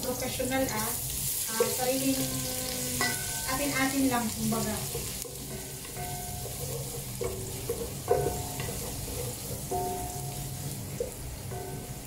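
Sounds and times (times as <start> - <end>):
onion sizzling in hot oil: 0.0 - 12.0
wooden spatula scraping metal pot: 4.7 - 9.9.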